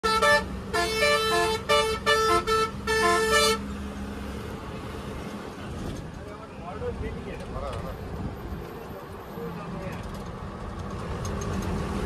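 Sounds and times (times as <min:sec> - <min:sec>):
bus musical horn: 0:00.0 - 0:03.7
bus engine drone: 0:00.0 - 0:12.0
road noise: 0:00.0 - 0:12.0.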